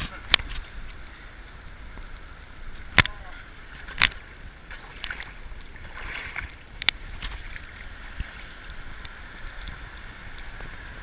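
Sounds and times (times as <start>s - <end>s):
sea water washing around rocks: 0.0s - 11.0s.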